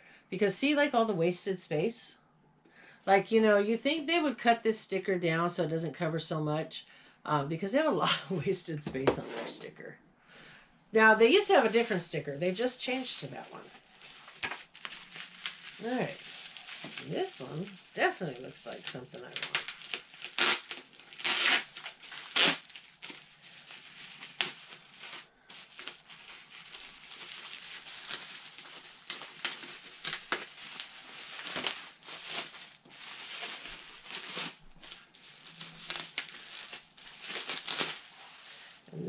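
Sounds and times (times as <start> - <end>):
plastic wrapping crinkling: 11.4 - 39.0.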